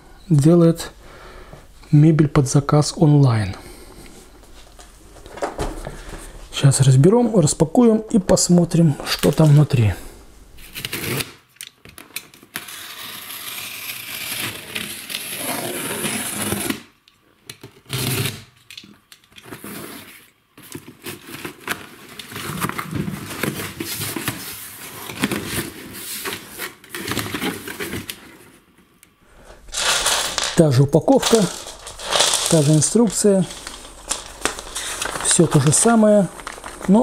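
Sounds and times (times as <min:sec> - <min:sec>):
cardboard scraping and rustling: 0:29.7 - 0:37.0.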